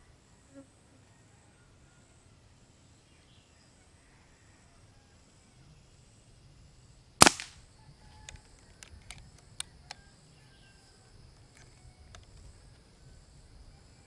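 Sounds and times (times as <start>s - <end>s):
air pistol shot: 7.2s - 7.6s
metallic clicks of cocking lever: 8.3s - 9.3s.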